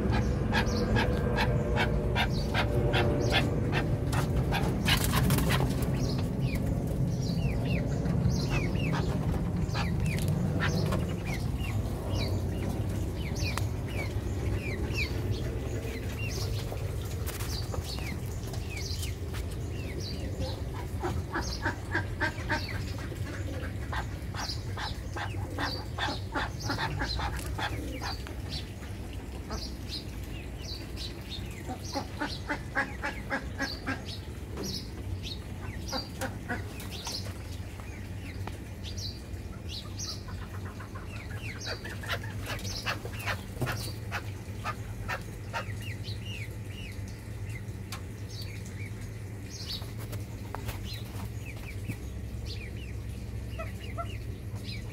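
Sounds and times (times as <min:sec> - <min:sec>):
chickens clucking: 0:00.0 - 0:54.9
steady low hum: 0:00.0 - 0:54.9.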